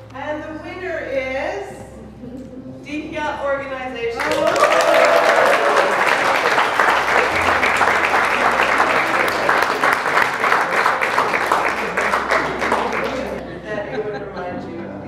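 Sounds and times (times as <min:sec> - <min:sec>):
crowd applauding: 0:04.2 - 0:13.4.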